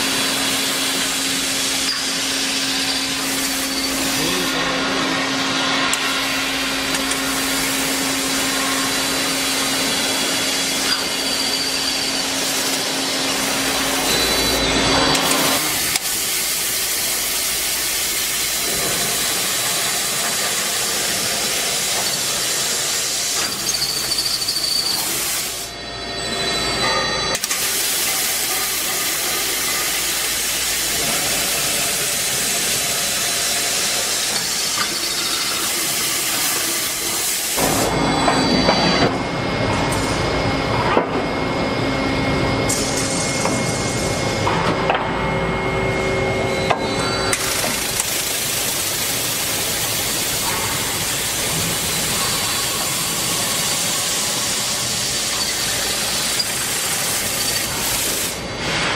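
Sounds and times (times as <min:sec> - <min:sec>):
drilling machine hissing: 0:00.0 - 0:25.8, 0:27.3 - 0:37.9, 0:46.7 - 0:58.6
steady machine hum: 0:00.0 - 0:58.9.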